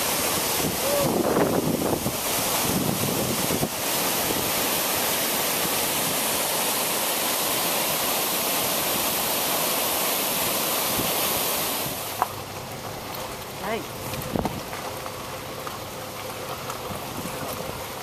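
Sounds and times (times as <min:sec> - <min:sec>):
waterfall rushing: 0:00.0 - 0:12.5.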